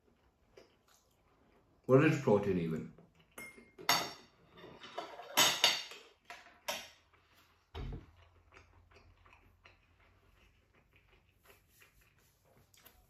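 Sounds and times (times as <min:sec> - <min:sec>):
cutlery clinking on plate: 0:03.4 - 0:07.0.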